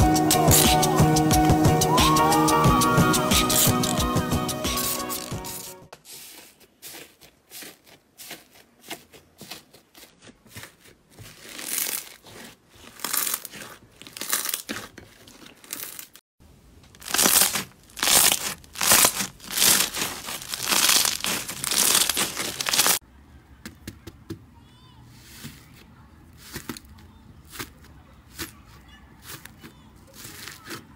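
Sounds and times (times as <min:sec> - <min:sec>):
slime crackling and squishing: 0:04.8 - 0:23.0, 0:26.3 - 0:30.9.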